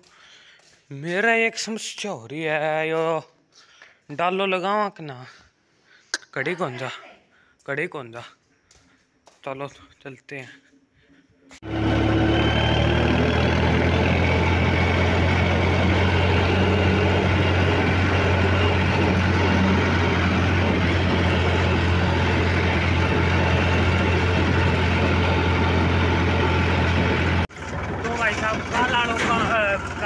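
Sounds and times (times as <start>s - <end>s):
tractor diesel engine running: 11.6s - 30.0s.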